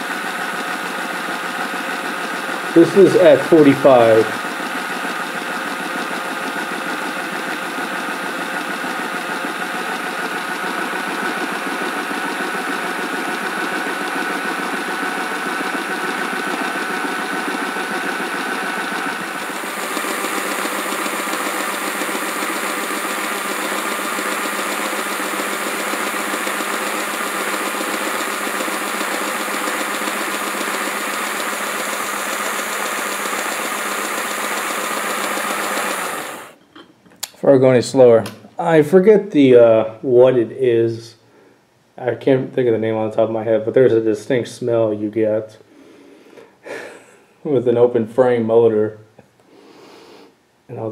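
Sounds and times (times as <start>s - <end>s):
model locomotive motor whirring: 0.0s - 36.6s.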